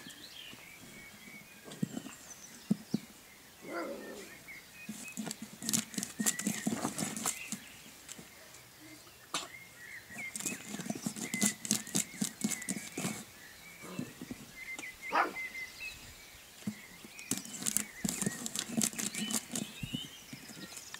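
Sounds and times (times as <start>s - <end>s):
puppy claws scratching on board: 4.8s - 8.2s, 10.1s - 13.3s, 16.6s - 20.9s.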